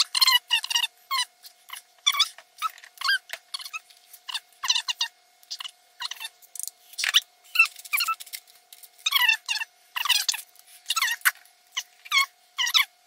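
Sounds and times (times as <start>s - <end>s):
high squeaky chirps: 0.0s - 6.4s, 7.0s - 8.2s, 9.0s - 12.9s.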